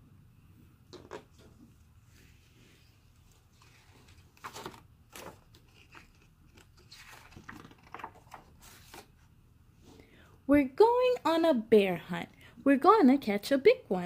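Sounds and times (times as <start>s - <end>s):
book pages turning: 1.1s - 9.3s.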